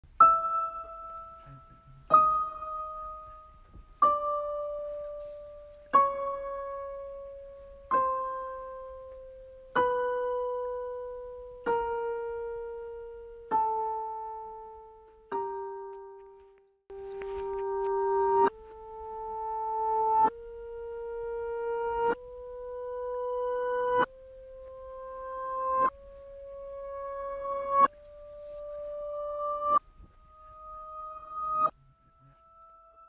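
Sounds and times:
slow piano notes in octaves: 0.1 - 33.0.

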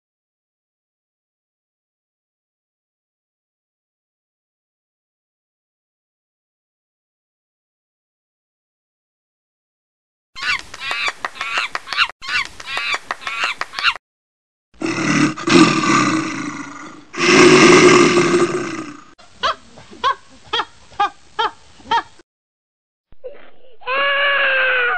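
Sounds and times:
high-pitched cackling calls: 10.4 - 14.0, 23.3 - 24.9.

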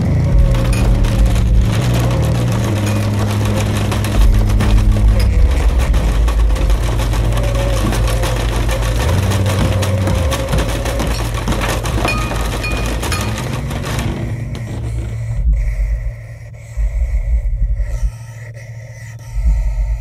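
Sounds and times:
crackling splintering clicks: 0.0 - 15.0
low droning tones: 0.0 - 20.0.

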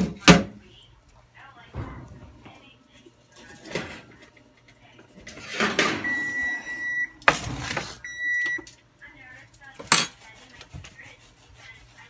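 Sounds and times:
oven timer beeping: 5.9 - 8.7.

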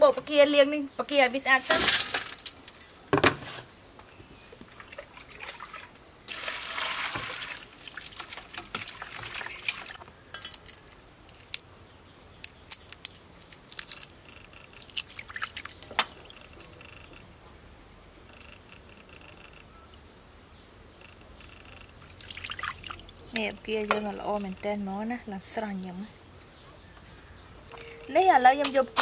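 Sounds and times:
water dripping: 4.6 - 11.6, 14.7 - 17.2, 22.0 - 24.2
water splashing in steel bowl: 4.7 - 10.5, 14.8 - 16.6, 22.0 - 23.4.

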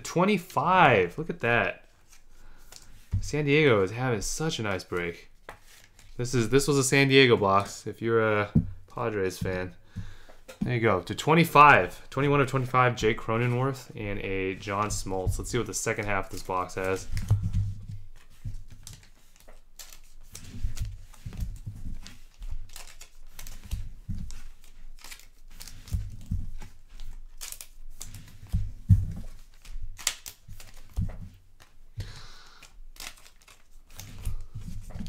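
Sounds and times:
soft knocks of cards handled: 5.4 - 6.2
wrappers tearing and crinkling: 21.9 - 28.6, 29.3 - 31.0, 32.4 - 35.0.

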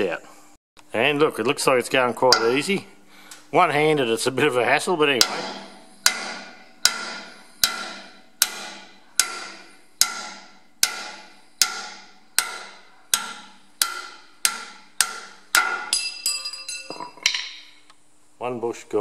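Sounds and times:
hammer striking steel drift: 5.1 - 17.8.

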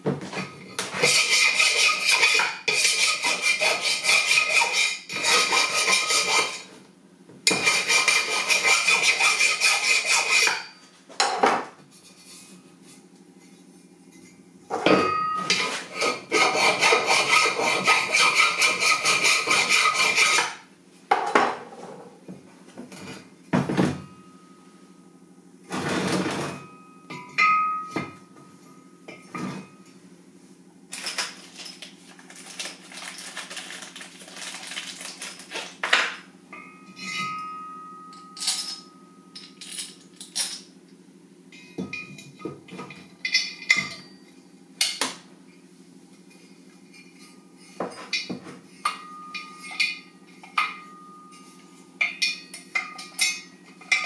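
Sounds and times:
hand file scraping steel: 0.9 - 6.7, 7.5 - 10.7, 15.5 - 20.6
steel parts clinking on workbench: 35.2 - 40.7, 47.9 - 54.0.

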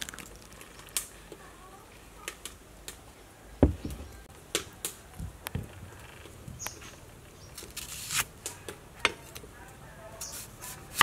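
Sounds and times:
knocks on wooden chopping board: 3.6 - 4.1
heavy thump: 3.6 - 4.2.

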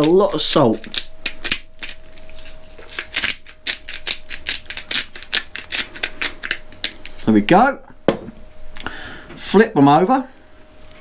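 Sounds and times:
salt grinder crunching: 0.0 - 7.3.

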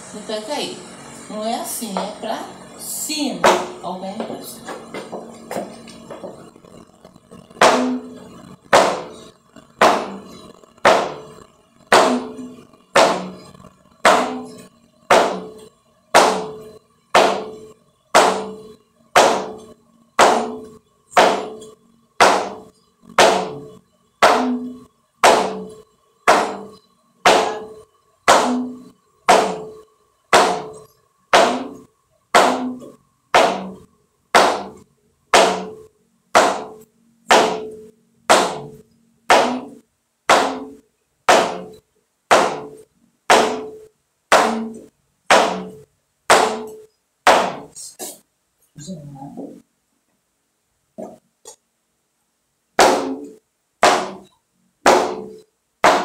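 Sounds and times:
shoes stamping on wooden board: 3.4 - 6.5, 7.6 - 8.1.

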